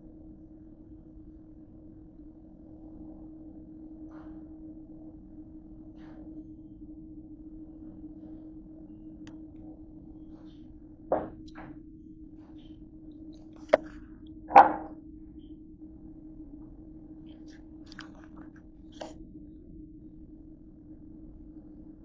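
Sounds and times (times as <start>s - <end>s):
steady low hum: 0.0s - 22.0s
cup and food knocking on tray: 14.5s - 14.9s.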